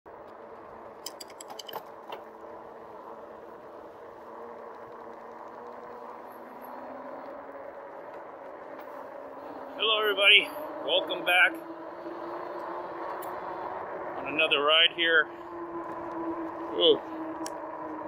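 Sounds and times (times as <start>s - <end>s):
electric bike motor and tyre hum: 0.1s - 18.0s
light clicks and rattles: 1.0s - 2.3s.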